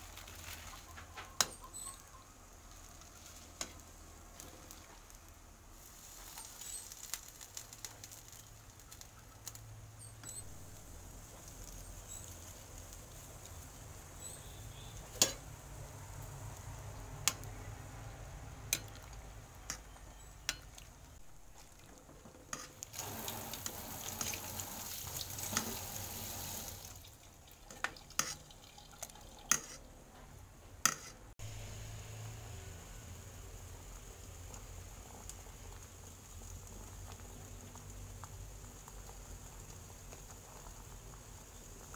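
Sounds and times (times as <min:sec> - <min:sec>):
water sloshing in pot: 0:16.4 - 0:30.0.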